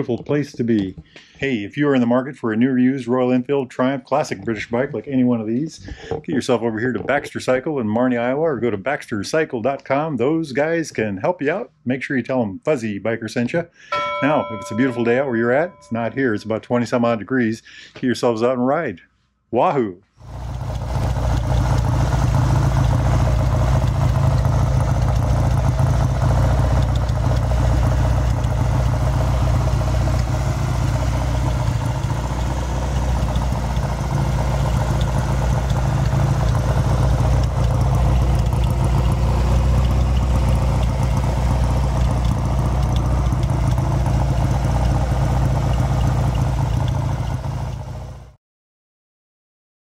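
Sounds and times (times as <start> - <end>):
engine idling: 20.2 - 48.4.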